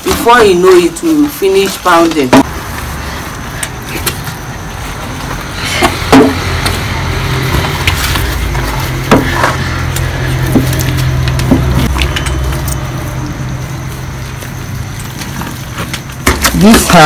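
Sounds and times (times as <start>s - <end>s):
low motor-like rumble: 4.4s - 16.0s.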